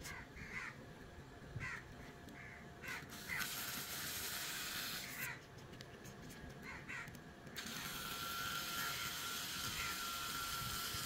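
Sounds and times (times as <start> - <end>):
crows cawing: 0.1 - 0.8, 1.6 - 3.5, 5.0 - 5.4, 6.6 - 7.2, 8.7 - 9.1, 9.7 - 10.0
rasping toy gearbox noise: 3.1 - 5.4, 7.6 - 11.0.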